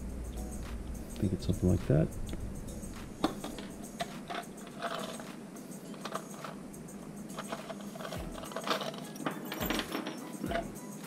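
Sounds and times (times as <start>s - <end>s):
metal tools clicking and rattling: 3.2s - 10.9s.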